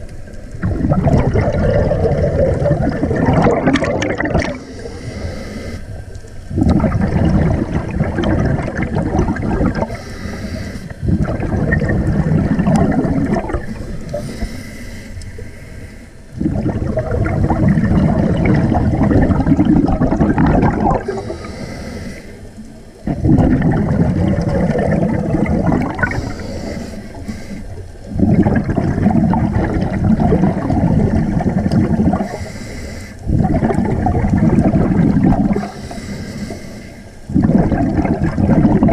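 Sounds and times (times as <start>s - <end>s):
bubbling exhale underwater: 0.0s - 5.3s, 6.5s - 10.2s, 11.0s - 14.4s, 16.3s - 21.5s, 23.0s - 27.2s, 28.0s - 32.5s, 33.2s - 36.0s, 37.3s - 38.9s
hissing inhale through regulator: 4.4s - 6.2s, 9.6s - 12.5s, 13.6s - 16.8s, 21.0s - 23.4s, 25.5s - 28.2s, 31.5s - 33.4s, 35.5s - 37.5s.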